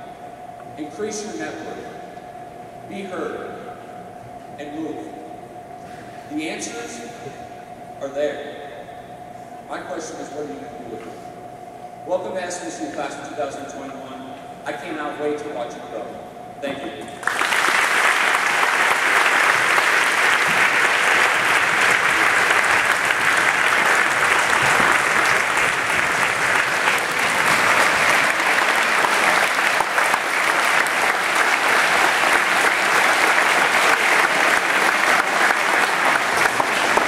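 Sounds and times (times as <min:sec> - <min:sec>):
large audience applauding: 0:17.2 - 0:37.0.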